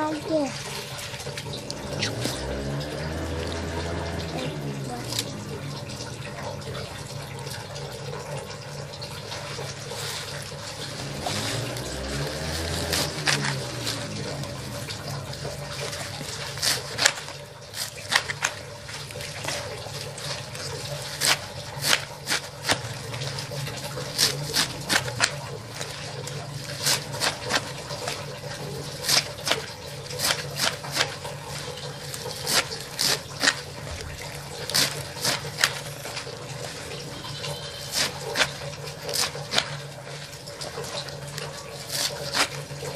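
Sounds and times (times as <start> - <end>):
knife chopping greens on metal tray: 10.8 - 14.8, 15.8 - 18.6, 20.9 - 35.9, 37.5 - 39.8, 41.8 - 42.9.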